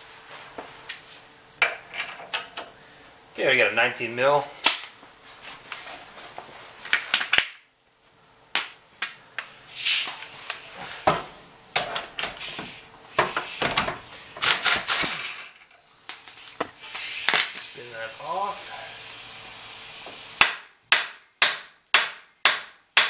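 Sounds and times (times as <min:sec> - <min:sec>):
hand tools clinking on metal: 0:20.4 - 0:23.0.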